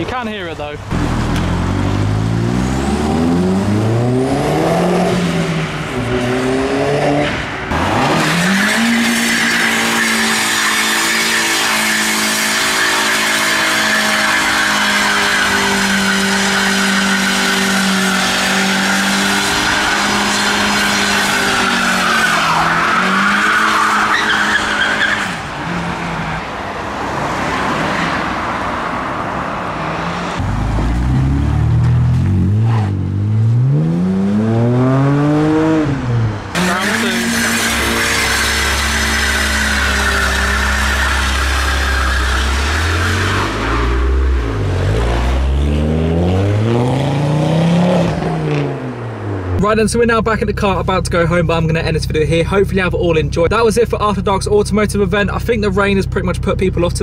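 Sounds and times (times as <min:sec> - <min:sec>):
car engine revving hard: 0:00.9 - 0:25.9, 0:29.7 - 0:49.2
tyres squealing: 0:08.2 - 0:25.5, 0:36.6 - 0:44.2.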